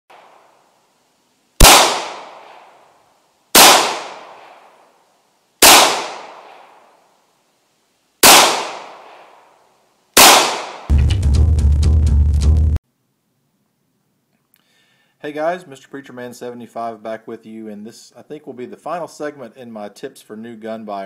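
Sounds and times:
pistol shots: 0:01.6 - 0:02.7, 0:03.6 - 0:04.7, 0:05.6 - 0:06.7, 0:08.2 - 0:09.3, 0:10.2 - 0:10.9.

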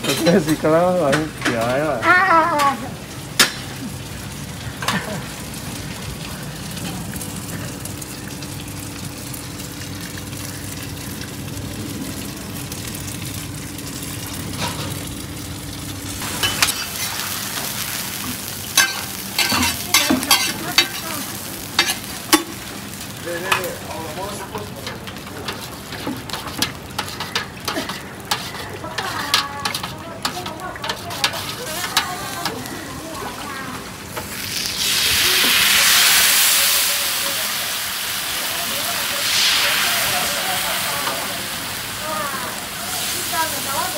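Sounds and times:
oil sizzling in wok: 0:00.0 - 0:43.9
ladle clacking against wok: 0:25.5 - 0:32.6.

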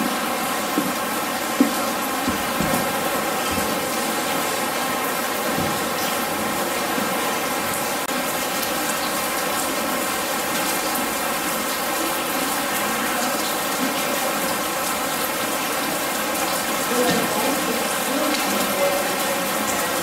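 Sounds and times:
artificial rain patter: 0:00.0 - 0:20.0.

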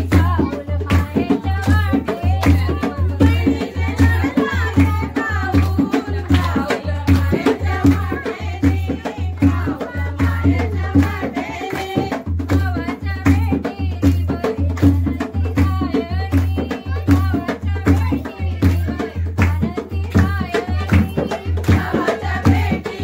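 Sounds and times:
rhythmic hand-clapping: 0:00.0 - 0:23.0
women singing folk song: 0:00.0 - 0:23.0
deep pulsing drum beat: 0:12.0 - 0:23.0.

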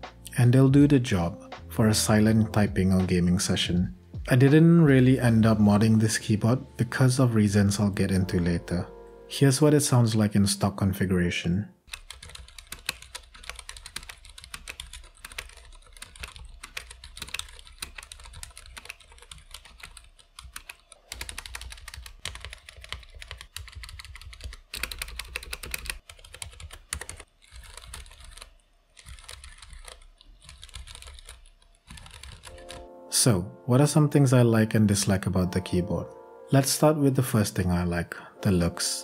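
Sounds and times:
damped keyboard typing: 0:11.8 - 0:32.9.

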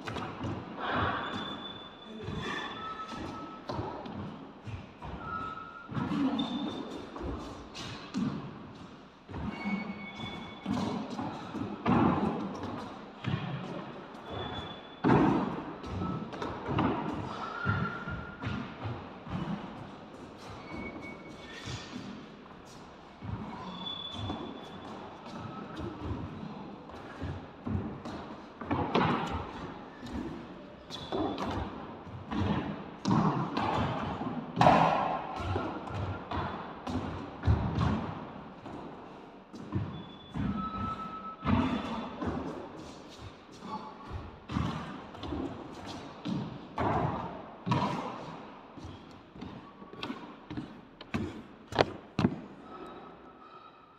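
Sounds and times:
shoes thudding and scuffing on court: 0:41.4 - 0:52.5
shoes thudding and scuffing on floor: 0:48.8 - 0:52.5.

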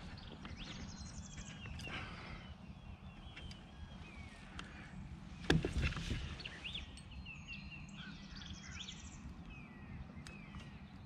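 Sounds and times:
small birds chirping: 0:00.0 - 0:11.0
bird trill: 0:06.3 - 0:11.0.

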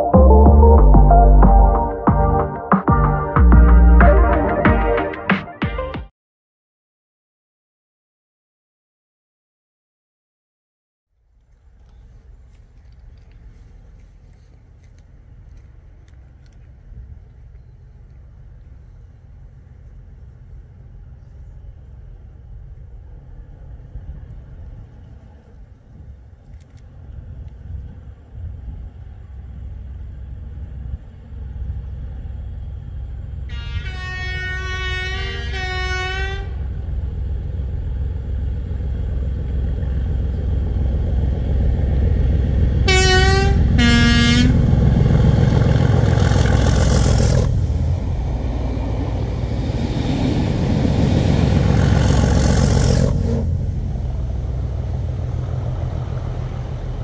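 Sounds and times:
diesel locomotive engine clatter: 0:11.3 - 0:57.0
two-tone train horn: 0:33.5 - 0:36.7, 0:42.8 - 0:44.8.

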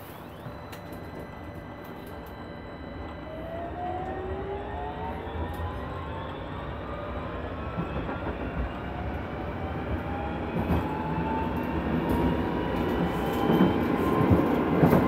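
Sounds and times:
traction motor whine: 0:00.0 - 0:08.0
tram wheels rumbling on rails: 0:00.0 - 0:15.0.

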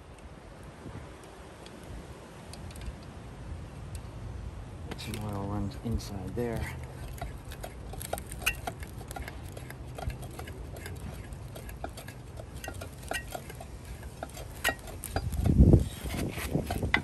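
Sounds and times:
metallic clicks and scrapes of motor shaft: 0:04.9 - 0:17.0.

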